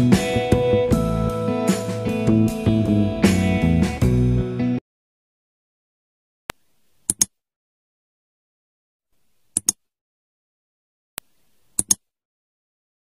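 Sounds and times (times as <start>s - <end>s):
mouse clicks: 6.5s - 7.3s, 9.5s - 9.8s, 11.2s - 12.0s.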